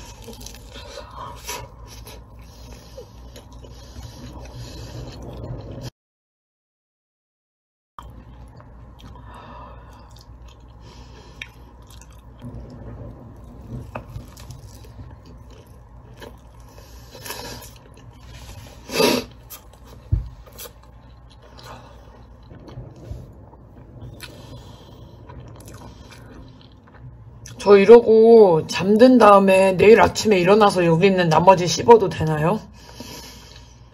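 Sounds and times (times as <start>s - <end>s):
person chewing and crunching: 0.0s - 5.9s, 8.0s - 12.4s, 13.6s - 27.6s.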